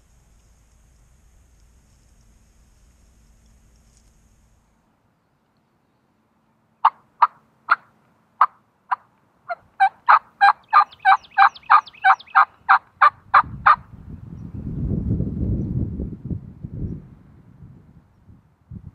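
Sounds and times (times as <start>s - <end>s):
low rumbling noise: 0.0s - 4.9s
wild turkey yelping: 6.8s - 13.8s.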